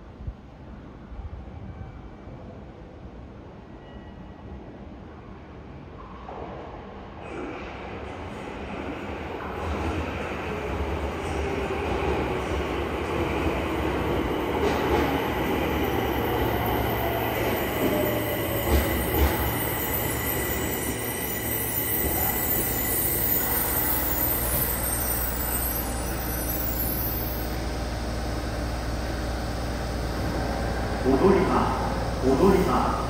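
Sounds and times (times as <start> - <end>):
train wheels rumbling on rail: 6.0 - 32.3.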